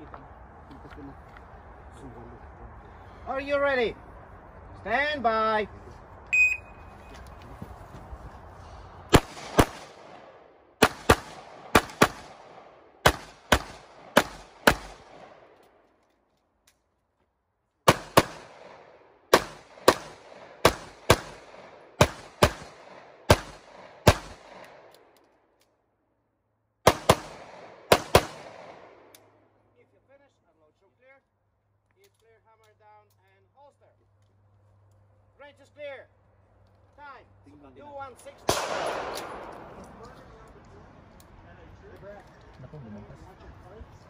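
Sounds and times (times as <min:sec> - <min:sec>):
shot timer beep: 0:06.3 - 0:06.8
pistol shots: 0:09.1 - 0:15.5, 0:17.8 - 0:24.9, 0:26.8 - 0:29.1, 0:38.5 - 0:39.8.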